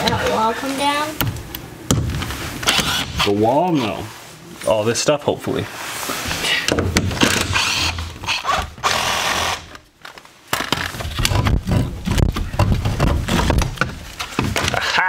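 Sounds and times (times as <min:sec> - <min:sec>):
knocks and scraping: 0:05.8 - 0:08.9, 0:09.7 - 0:14.9
cordless drill running: 0:07.6 - 0:09.7.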